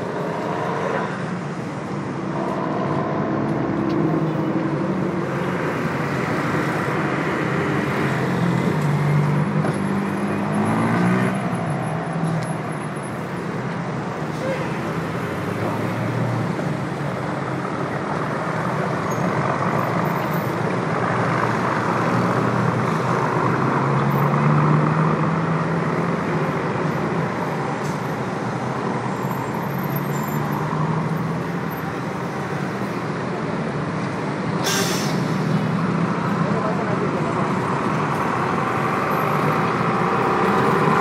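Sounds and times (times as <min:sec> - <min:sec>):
large vehicle engine passing: 0:00.0 - 0:11.6
dense city traffic: 0:00.0 - 0:41.0.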